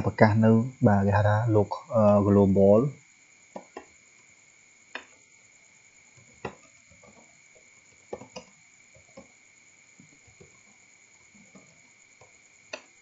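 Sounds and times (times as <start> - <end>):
faint high-pitched hum: 0.0 - 13.0.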